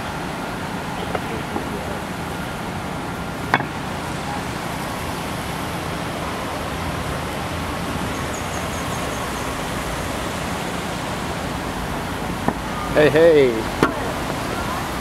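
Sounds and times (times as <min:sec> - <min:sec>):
steady rushing outdoor noise: 0:00.0 - 0:15.0.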